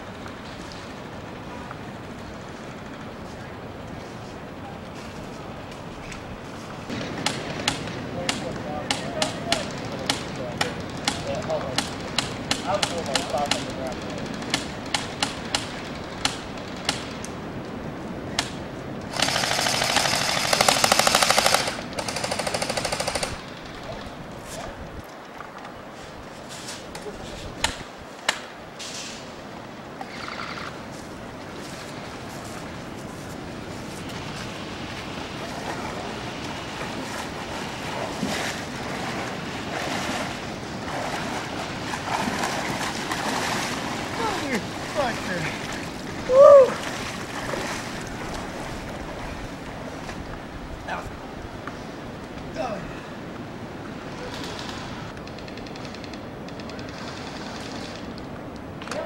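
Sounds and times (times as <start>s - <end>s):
airsoft gun firing: 19.2s - 23.4s
legs sloshing through water: 30.1s - 50.6s.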